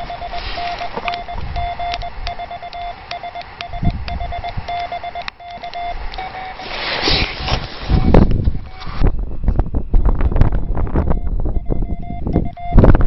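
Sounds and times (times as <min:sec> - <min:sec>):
background hiss: 0:00.0 - 0:08.0
morse code tone keyed: 0:00.0 - 0:09.0, 0:10.5 - 0:13.0.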